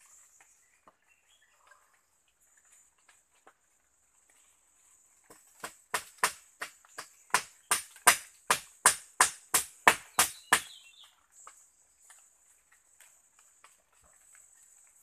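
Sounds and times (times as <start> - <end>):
hard blows on wooden poles: 5.3 - 10.8.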